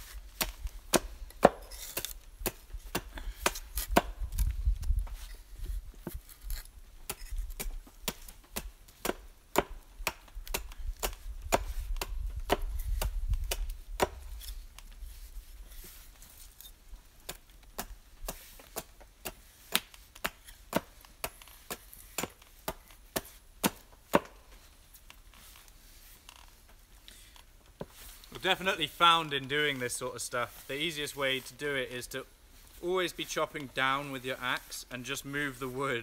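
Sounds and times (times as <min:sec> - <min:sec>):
hatchet chopping wood: 0:00.4 - 0:04.5, 0:07.1 - 0:14.5, 0:17.2 - 0:24.4.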